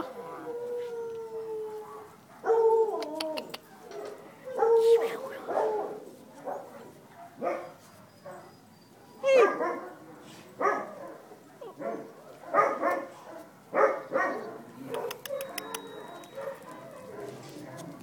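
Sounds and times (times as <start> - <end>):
dogs barking: 1.8 - 2.8, 3.8 - 8.5, 9.3 - 18.0.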